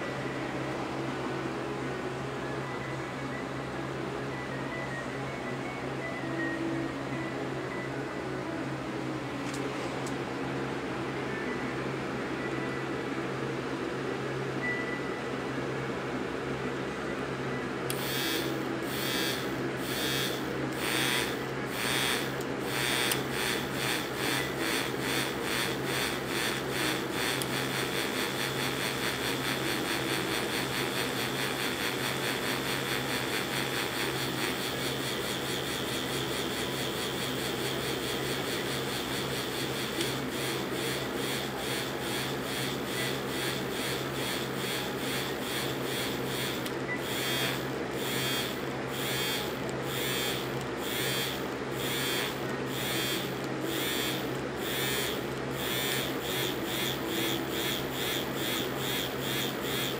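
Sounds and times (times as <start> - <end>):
vibrators buzzing in pulses: 17.9 - 59.9.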